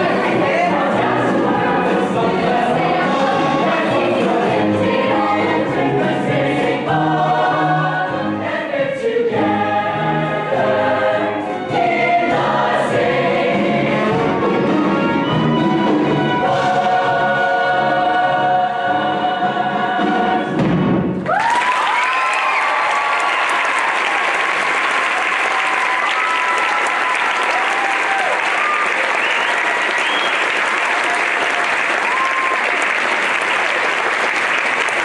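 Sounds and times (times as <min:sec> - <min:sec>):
audience applause: 0:21.2 - 0:35.0.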